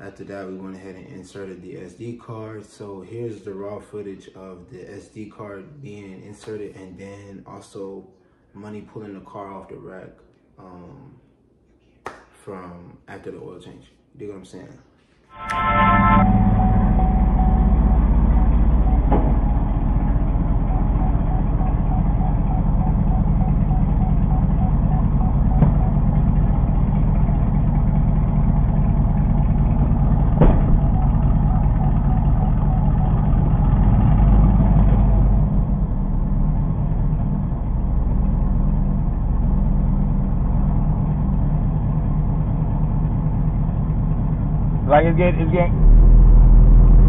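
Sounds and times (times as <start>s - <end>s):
car engine idling: 16.2s - 47.0s.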